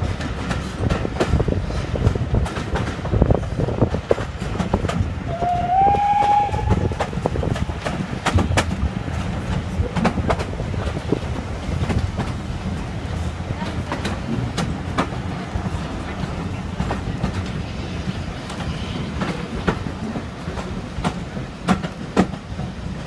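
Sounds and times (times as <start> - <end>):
train coaches rumbling: 0.0 - 23.0
wheels clicking over rail joints: 0.0 - 23.0
train whistle: 5.3 - 7.1.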